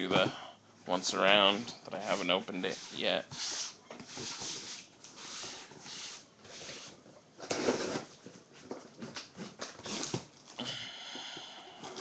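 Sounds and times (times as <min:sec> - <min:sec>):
cardboard box rustling and scraping: 0:02.8 - 0:10.2.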